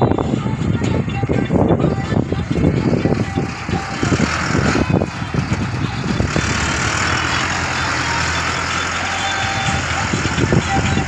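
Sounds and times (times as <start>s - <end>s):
tractor diesel engine under load: 0.0s - 11.0s
engine knocking: 3.2s - 11.0s.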